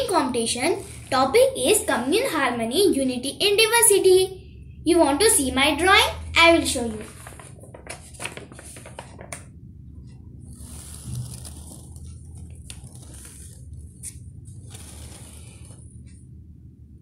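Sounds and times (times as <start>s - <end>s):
paper rustling: 6.9s - 9.5s, 10.5s - 16.1s.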